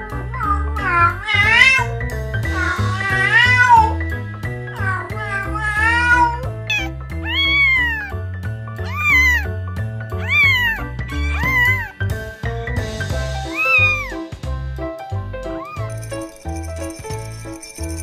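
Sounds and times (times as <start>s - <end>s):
background music with bass: 0.0s - 18.0s
cat meowing: 0.3s - 4.0s, 4.7s - 8.2s, 8.8s - 9.5s, 10.2s - 12.0s, 13.4s - 14.2s, 15.6s - 15.9s.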